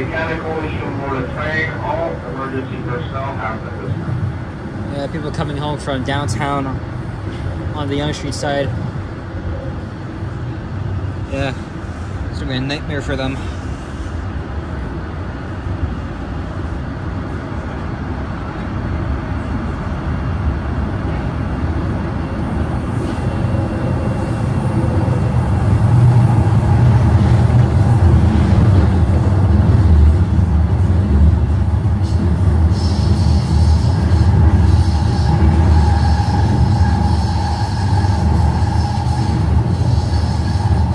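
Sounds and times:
subway train wheels rumbling: 0.0s - 40.9s
high wheel squeal: 32.0s - 40.9s.

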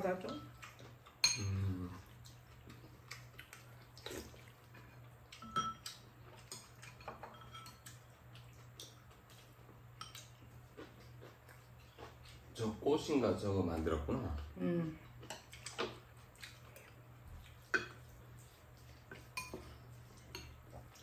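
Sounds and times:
utensils clinking against ceramic bowls: 1.2s - 1.6s, 5.4s - 8.0s, 19.3s - 20.6s.

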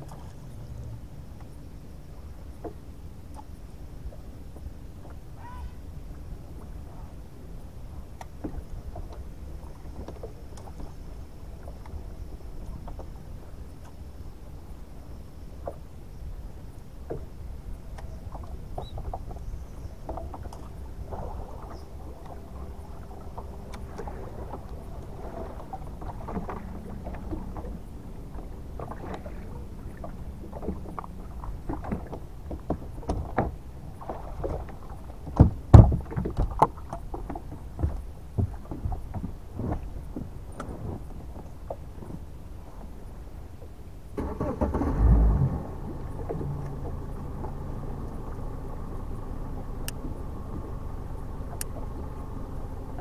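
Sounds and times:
clunks and knocks on boat deck: 35.3s - 40.7s.

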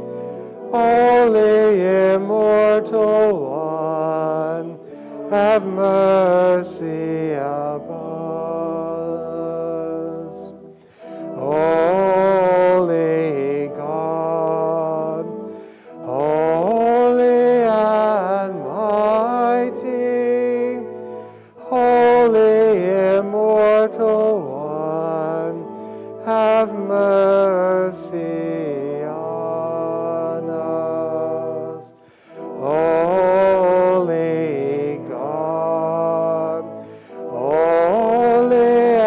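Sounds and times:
sung liturgical chant: 0.0s - 39.0s.

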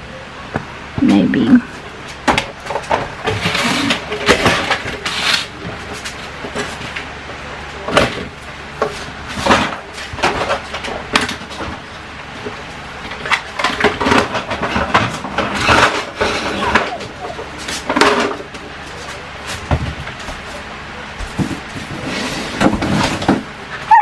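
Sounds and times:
plastic toys clattering: 2.2s - 7.0s, 7.9s - 11.8s, 13.1s - 20.2s.

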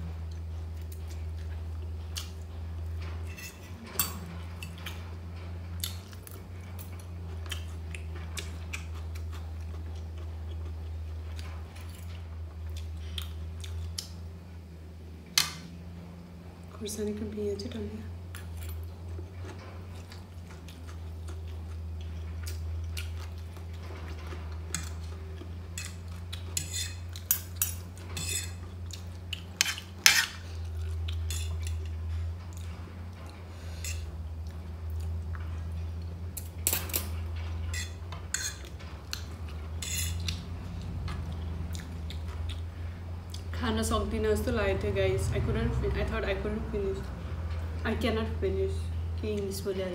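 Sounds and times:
steady low hum: 0.0s - 49.9s
cutlery clinking on a plate: 25.8s - 28.6s, 36.4s - 40.3s.

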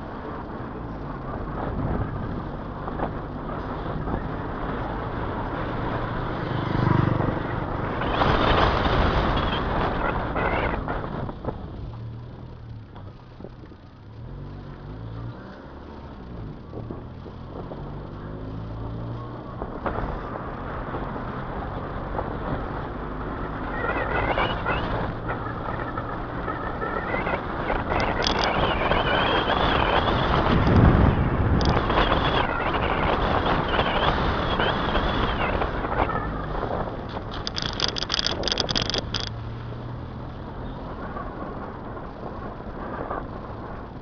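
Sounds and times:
wind and road noise: 0.0s - 44.0s
car engine running: 22.6s - 39.5s.

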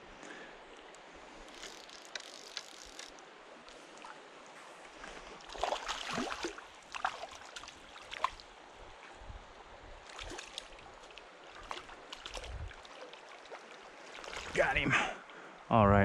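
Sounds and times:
flowing water: 0.0s - 15.5s.

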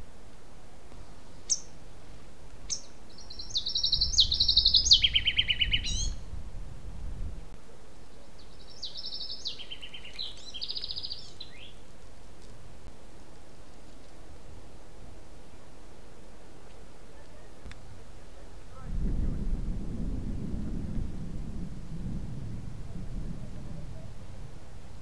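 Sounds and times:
songbird singing trills: 0.9s - 1.8s, 2.6s - 6.3s, 8.0s - 11.8s
low rumble: 18.6s - 25.0s.

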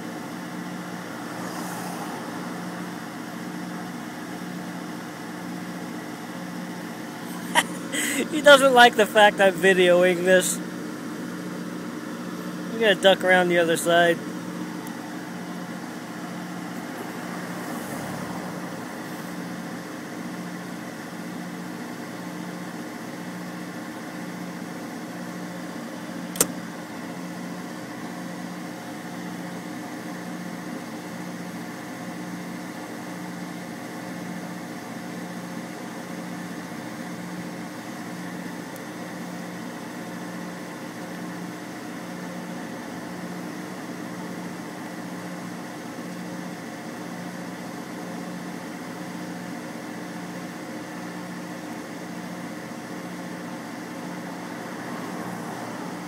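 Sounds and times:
sharp click: 26.3s - 26.6s.

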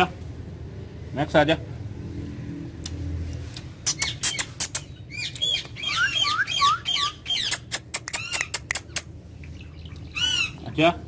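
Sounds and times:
parrot squawking and chirping: 3.8s - 11.0s.

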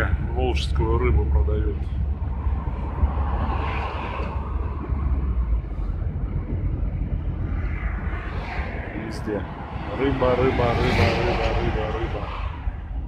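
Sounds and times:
engine and road noise in van cab: 0.0s - 8.8s.

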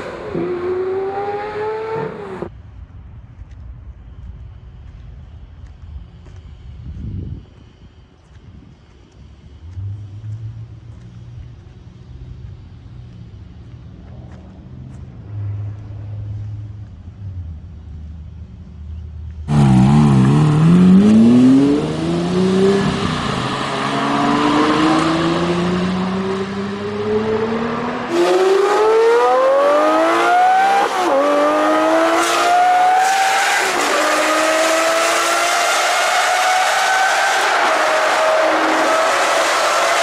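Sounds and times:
sports car engine revving: 19.5s - 36.7s.

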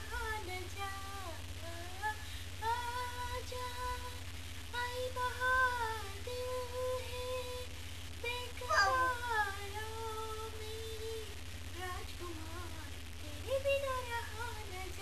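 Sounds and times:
steady low hum: 0.0s - 15.0s
person singing slow tune: 4.8s - 15.0s.

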